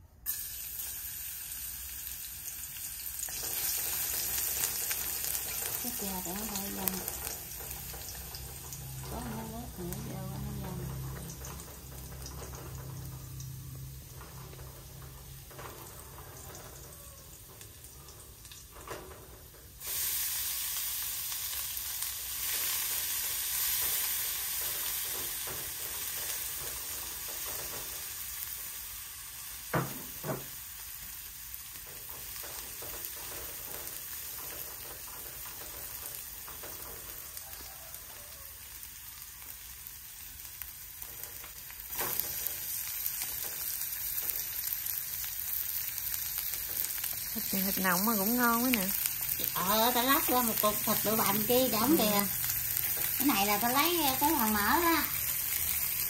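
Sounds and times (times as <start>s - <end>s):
food sizzling in hot oil: 0.2s - 56.0s.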